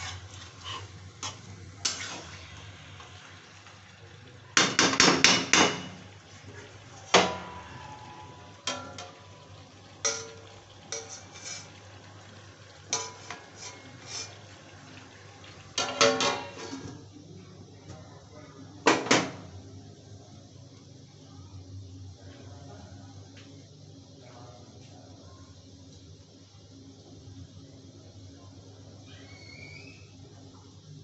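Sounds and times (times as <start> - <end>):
metal spatula scraping iron pan: 0.0 - 2.4, 10.1 - 11.8, 12.9 - 14.4.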